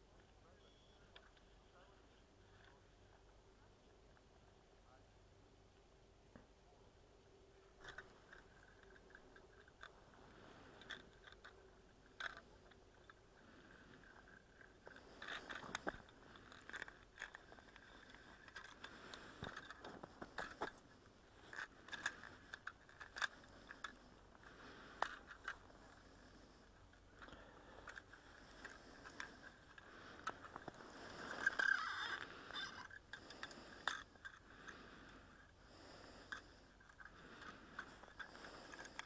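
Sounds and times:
rustling and scraping: 7.8 - 39.0
fishing rod and reel clicks: 27.2 - 39.0.

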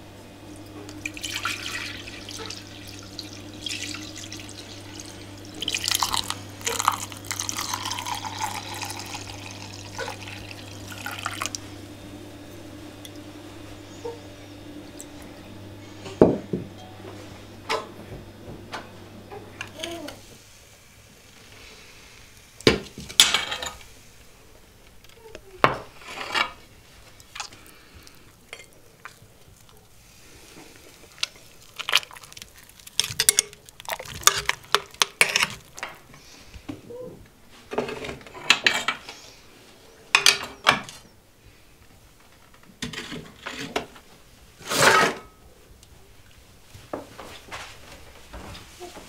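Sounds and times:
iron pot scraping and clanking: 25.9 - 26.6, 32.9 - 36.0, 44.6 - 45.3.

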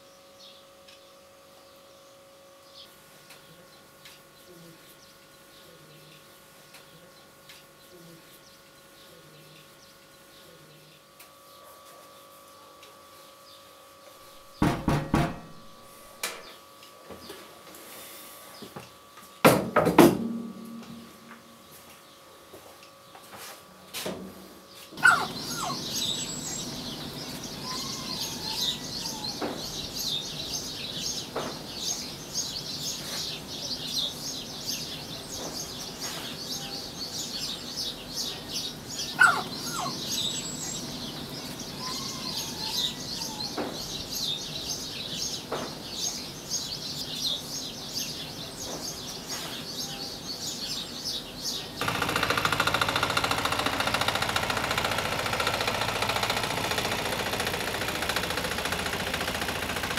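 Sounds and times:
soft knocks: 14.6 - 15.7
small birds chirping: 24.7 - 59.4.

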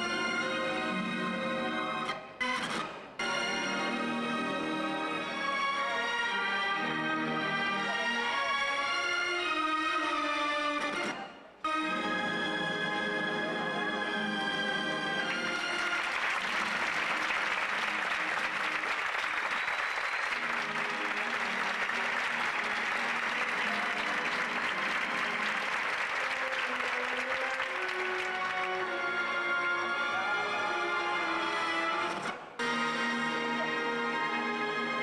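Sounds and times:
music: 0.0 - 35.0
audience applauding: 15.1 - 29.1.

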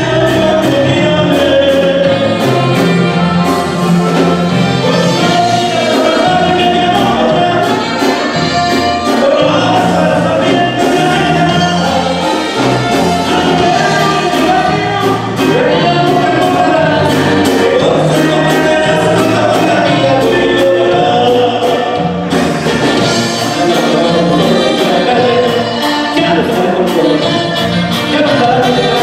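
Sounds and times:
bouncing bass line: 0.0 - 29.0
horns playing: 0.0 - 29.0
lead singer: 0.0 - 29.0
saxophone: 0.0 - 29.0
steady drum beat: 0.0 - 29.0.

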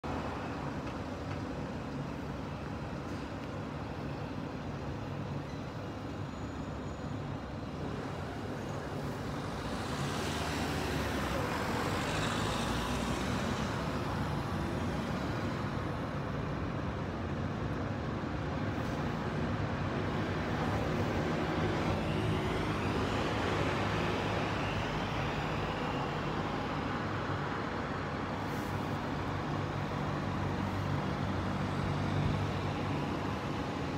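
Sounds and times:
hum of engines: 0.0 - 33.9
cars driving past: 9.5 - 14.4.

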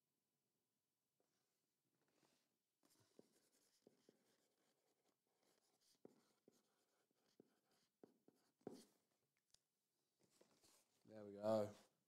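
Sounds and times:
marker scratching on a box: 2.2 - 9.2, 10.2 - 12.0.

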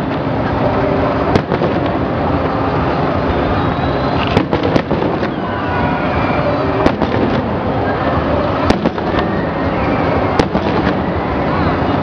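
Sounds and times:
continuous fireworks noise: 0.0 - 12.0
firework shell bangs: 4.2 - 5.5, 6.8 - 7.6, 8.6 - 9.3, 10.4 - 11.1.

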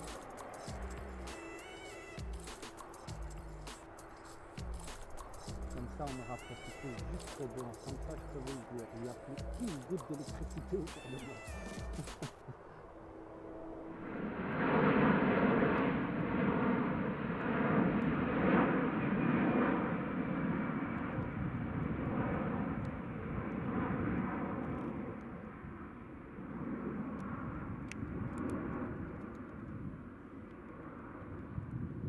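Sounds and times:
jet aircraft rushing noise: 0.0 - 29.7.

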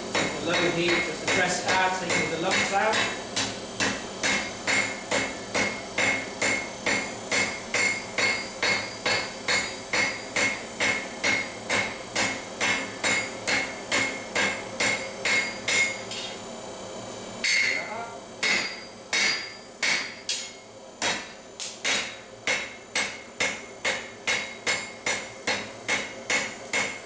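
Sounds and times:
hammer striking steel on anvil: 0.1 - 16.4, 17.4 - 27.0.

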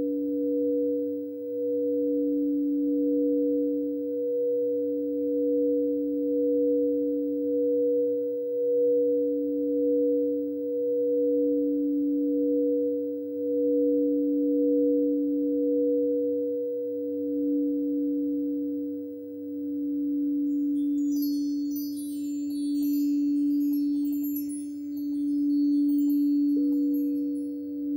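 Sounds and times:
crystal singing bowls ringing: 19.7 - 27.9.

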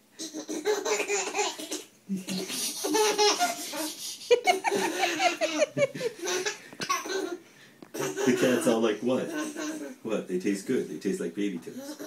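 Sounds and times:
baby laughing: 0.2 - 10.0, 11.7 - 12.0.

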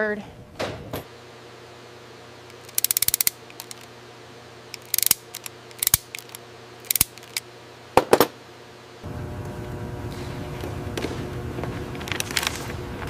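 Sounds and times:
steady low hum: 0.0 - 13.0
crimping tool clicking: 2.5 - 3.9, 4.7 - 7.4.

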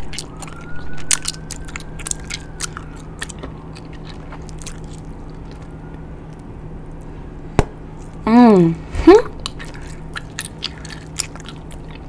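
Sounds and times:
mouth chewing gum: 0.0 - 5.8, 9.2 - 12.0
low steady hum: 0.0 - 12.0.

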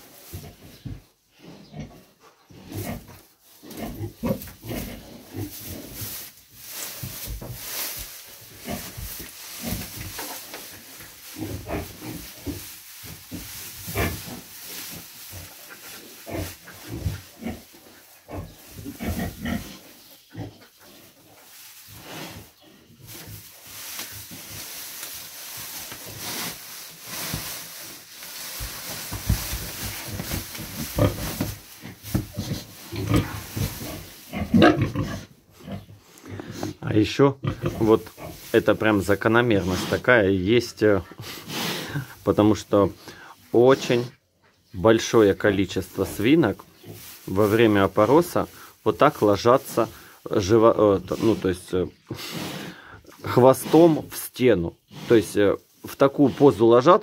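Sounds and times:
straw rustling: 2.6 - 57.0
pig grunting: 18.3 - 20.6, 32.3 - 36.8, 37.4 - 38.4.

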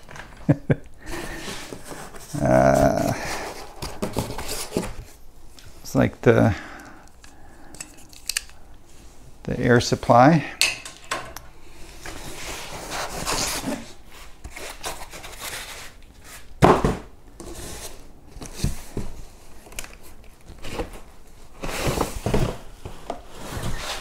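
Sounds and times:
packaging rubbing and scraping: 1.2 - 5.2, 12.0 - 16.5, 20.0 - 24.0.

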